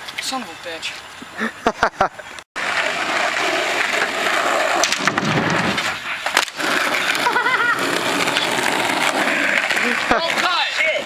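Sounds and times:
skateboard clacks: 0:02.6 - 0:11.0
skateboard wheels rolling on asphalt: 0:02.6 - 0:11.0.

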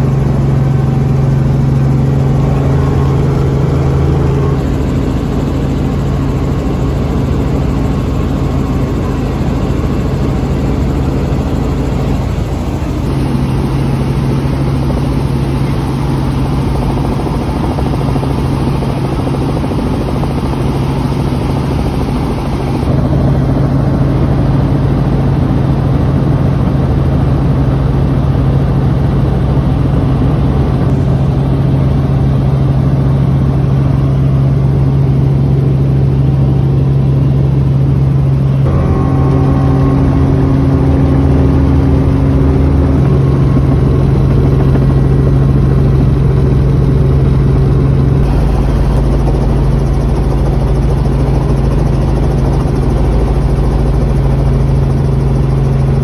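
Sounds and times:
high whining tones: 0:00.0 - 0:24.3, 0:38.2 - 0:55.2
helicopter rotor drone: 0:00.0 - 0:56.0.

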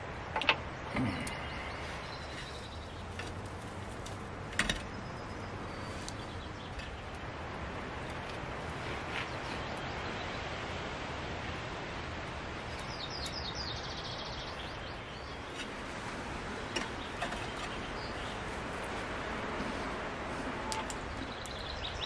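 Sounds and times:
outdoor background hiss: 0:00.0 - 0:22.0.

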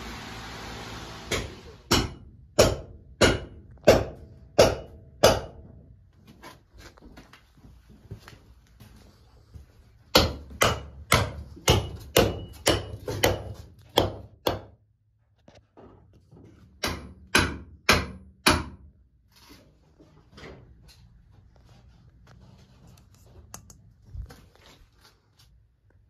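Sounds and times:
hard knocks: 0:01.3 - 0:05.8, 0:10.1 - 0:14.8, 0:16.7 - 0:18.9.

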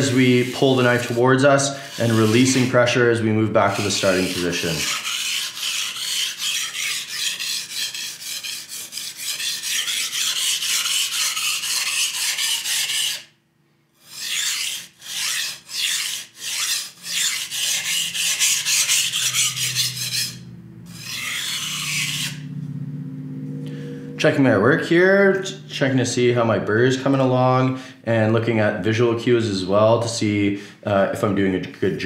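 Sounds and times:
knife sharpened on whetstone: 0:04.8 - 0:13.2, 0:14.1 - 0:20.3, 0:21.0 - 0:22.4.

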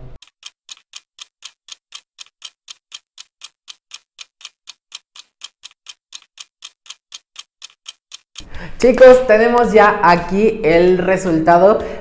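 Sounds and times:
clock ticking: 0:00.2 - 0:08.5.

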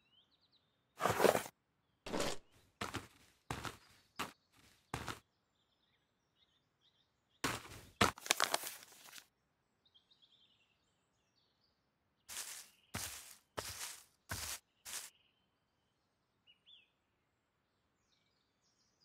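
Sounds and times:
faint birdsong: 0:00.0 - 0:19.0
paper map rustling: 0:01.0 - 0:01.5, 0:07.4 - 0:09.3, 0:12.3 - 0:15.1
footsteps swishing through grass: 0:12.3 - 0:15.1.

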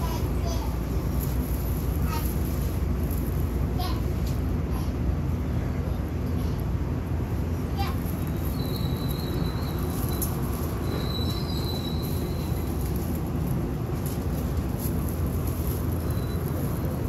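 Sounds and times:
train low rumble: 0:00.0 - 0:17.0
high brake squeal: 0:08.5 - 0:12.8, 0:16.0 - 0:16.8.

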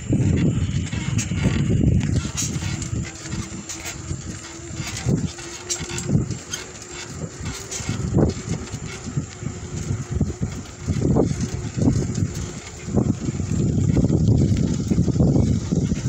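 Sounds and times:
faint steady hum: 0:00.0 - 0:16.0
tyres rolling on asphalt: 0:00.0 - 0:16.0
wind buffeting microphone: 0:00.0 - 0:16.0.

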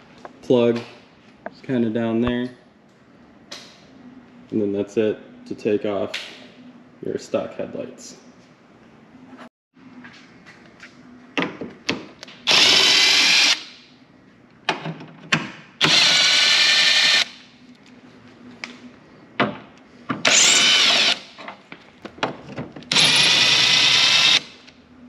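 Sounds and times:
cordless driver whirring: 0:12.5 - 0:13.7, 0:15.8 - 0:17.4, 0:20.2 - 0:21.3, 0:22.9 - 0:24.5.

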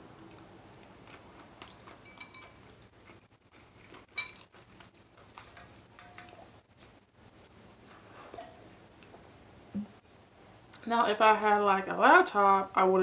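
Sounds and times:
faint chewing: 0:00.2 - 0:07.0.

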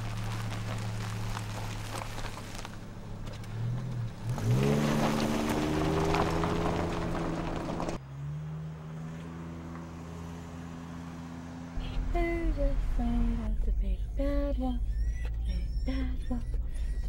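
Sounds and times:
tyres crunching on gravel: 0:00.0 - 0:08.4
car engine: 0:00.0 - 0:17.0.

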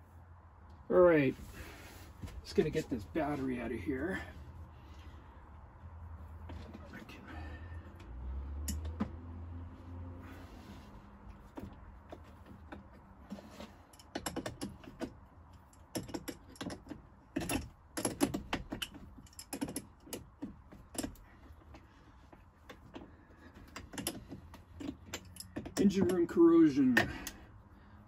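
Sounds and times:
metallic clicks and clatter: 0:13.7 - 0:21.9, 0:22.6 - 0:27.5.

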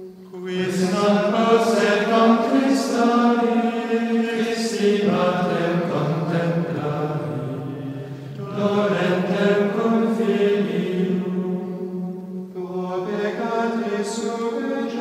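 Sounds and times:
slow sung chant: 0:00.0 - 0:15.0.

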